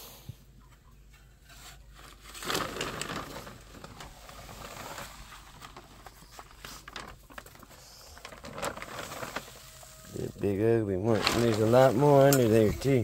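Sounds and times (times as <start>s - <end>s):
plastic tarp rustling: 1.7s - 13.0s
rake clicks and scrapes: 11.2s - 13.0s.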